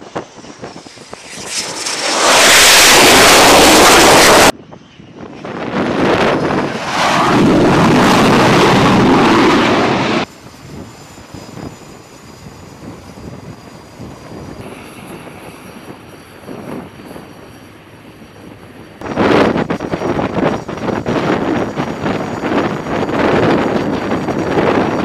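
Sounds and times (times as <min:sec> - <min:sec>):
high steady whine: 0:00.0 - 0:25.0
jet engine roaring: 0:00.0 - 0:25.0.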